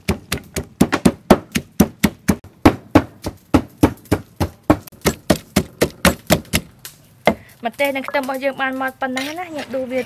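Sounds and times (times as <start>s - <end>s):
pestle pounding in wooden mortar: 0.0s - 7.4s.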